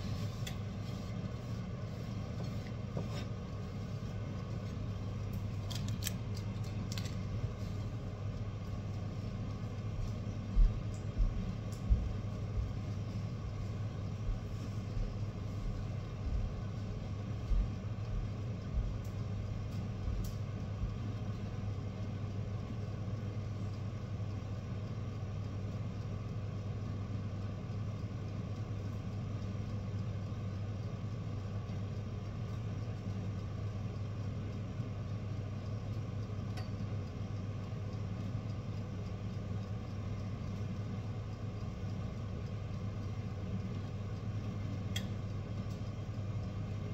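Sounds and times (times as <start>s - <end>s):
low mechanical hum: 0.0s - 46.9s
soft low thumps: 10.4s - 16.6s.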